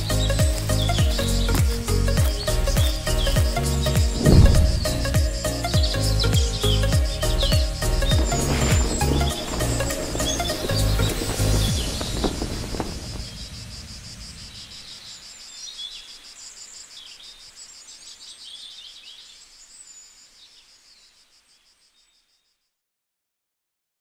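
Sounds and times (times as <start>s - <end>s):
music: 0.0s - 12.4s
bird chirps: 0.0s - 22.6s
insects trilling: 0.0s - 22.7s.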